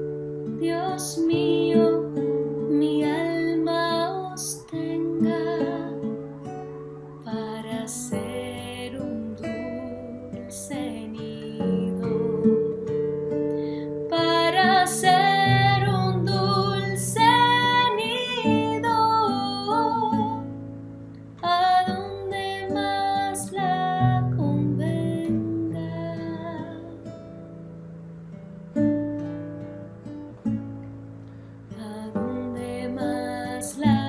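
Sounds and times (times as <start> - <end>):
woman singing a slow love song: 0.0 - 27.5, 31.6 - 34.0
nylon-string guitar: 0.0 - 34.0.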